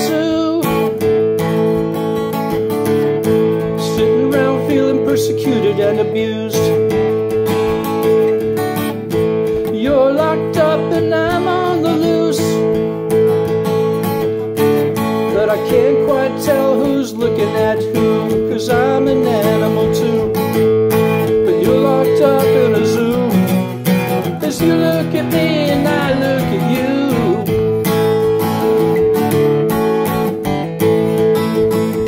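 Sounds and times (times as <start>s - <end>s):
man singing: 0.0s - 1.2s, 3.2s - 8.3s, 9.1s - 13.0s, 14.6s - 27.9s
acoustic guitar strummed chords: 0.0s - 32.0s.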